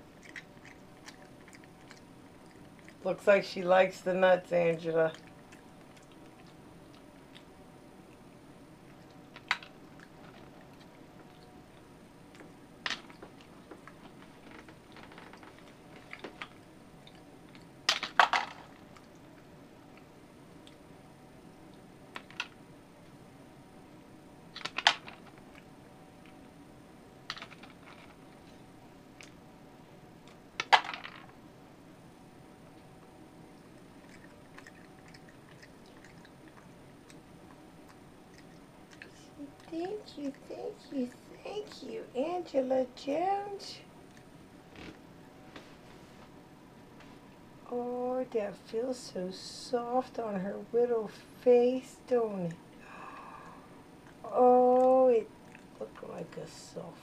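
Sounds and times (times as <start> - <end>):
monkey chewing nuts: 0.0 - 3.1, 5.1 - 17.8, 33.4 - 40.5.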